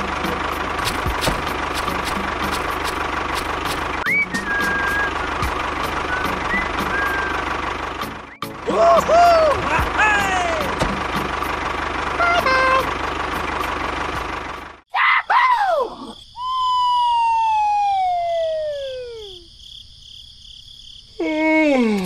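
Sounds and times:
cartoon whistle effects: 0:04.0 - 0:05.2.

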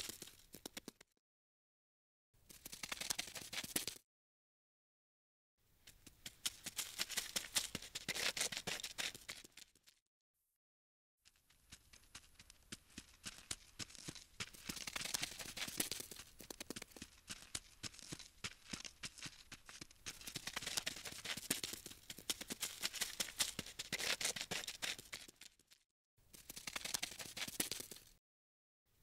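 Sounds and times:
insects crawling with dry clicks: 0:14.0 - 0:25.6, 0:26.3 - 0:28.2.

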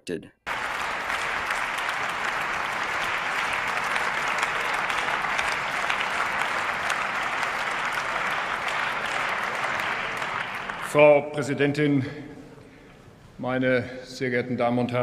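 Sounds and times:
crowd applauding: 0:00.5 - 0:11.6.

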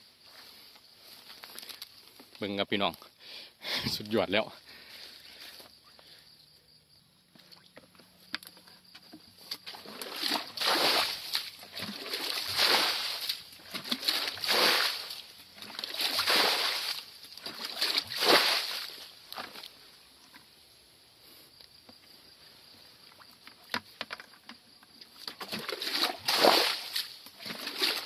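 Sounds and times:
muddy water sloshing and splashing: 0:09.4 - 0:19.8, 0:25.0 - 0:28.0.

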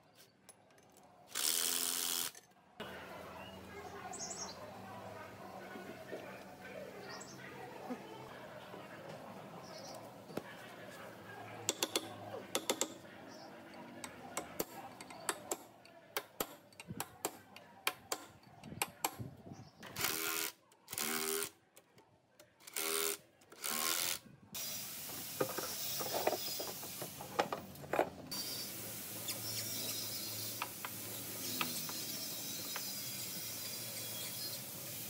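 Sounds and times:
hand tools clicking on metal: 0:11.7 - 0:13.0
steady hiss: 0:24.6 - 0:27.4.

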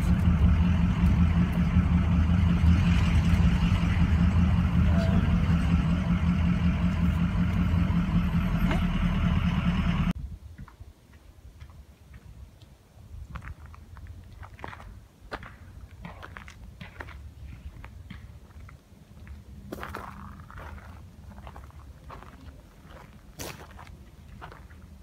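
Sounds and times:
low engine drone: 0:00.0 - 0:10.2
road noise: 0:00.0 - 0:10.2, 0:13.2 - 0:25.0.

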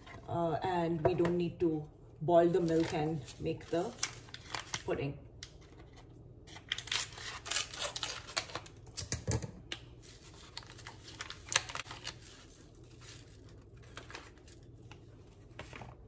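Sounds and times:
paper packet crinkling: 0:02.6 - 0:04.9, 0:05.5 - 0:09.0, 0:10.0 - 0:16.0.

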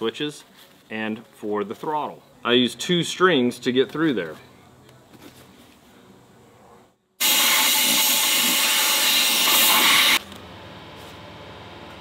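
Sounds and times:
air blow gun hissing: 0:07.2 - 0:10.2.

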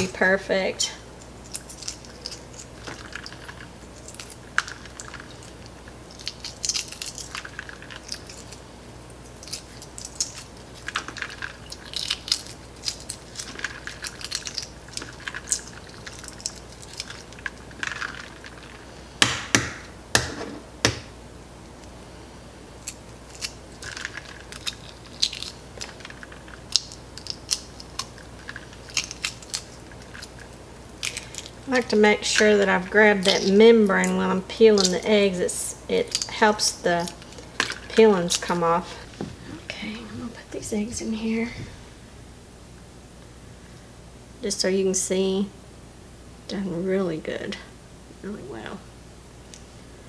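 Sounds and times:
eggshells crackling: 0:00.0 - 0:41.3
eggs knocking: 0:09.5 - 0:21.2.

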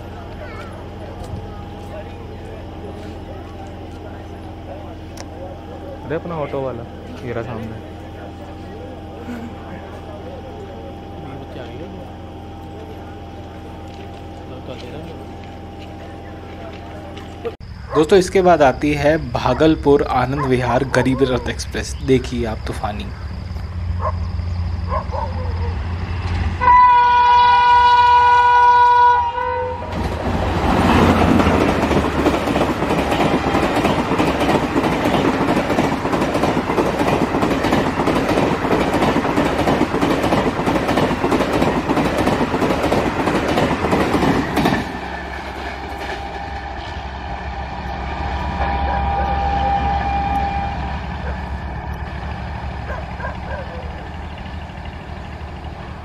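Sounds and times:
train rumble: 0:00.0 - 0:56.0
train horn blast: 0:26.6 - 0:30.0, 0:45.8 - 0:51.8
train wheels clattering over rail joints: 0:29.9 - 0:47.0.

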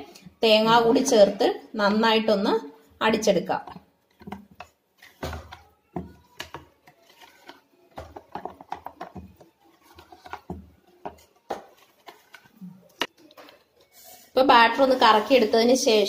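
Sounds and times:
spatula scraping batter in metal pot: 0:06.1 - 0:12.6.

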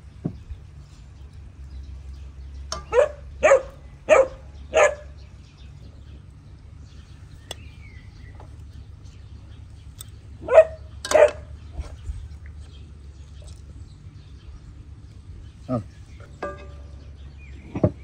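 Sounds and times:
low steady hum: 0:00.0 - 0:18.0
dog barking: 0:02.9 - 0:05.2, 0:10.4 - 0:11.5.

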